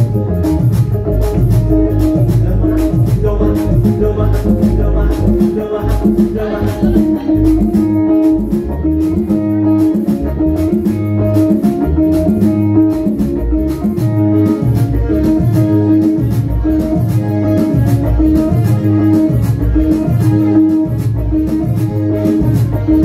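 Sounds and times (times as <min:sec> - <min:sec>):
regular percussion: 0:00.0 - 0:23.0
strong bass line: 0:00.0 - 0:23.0.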